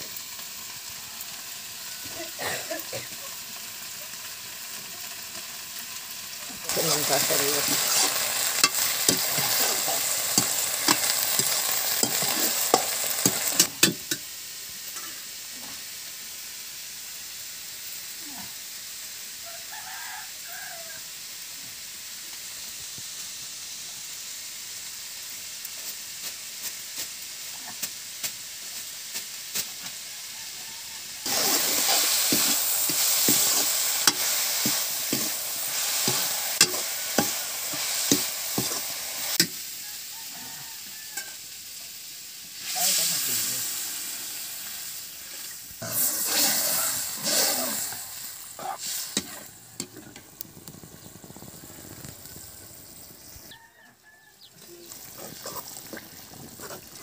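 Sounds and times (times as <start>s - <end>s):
cabbage sizzling in a wok: 0.0s - 57.0s
metal spoon scraping a wok: 6.7s - 14.2s, 31.2s - 39.6s.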